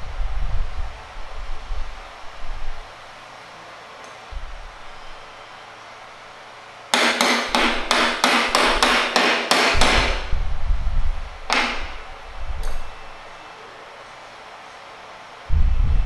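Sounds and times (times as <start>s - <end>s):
low rumble: 0.0s - 3.1s, 4.3s - 5.2s, 9.8s - 13.4s, 15.5s - 16.0s
hammer striking wood: 6.9s - 10.3s, 11.5s - 12.0s.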